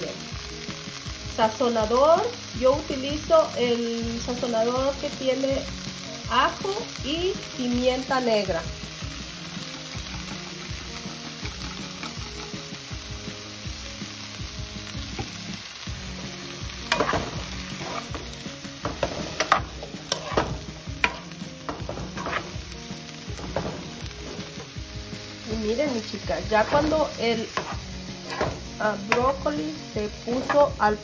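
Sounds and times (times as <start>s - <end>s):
vegetables sizzling in a frying pan: 0.0s - 31.0s
wooden spoon knocking and scraping pan: 11.4s - 12.6s, 16.8s - 22.6s, 23.3s - 24.8s, 26.4s - 31.0s.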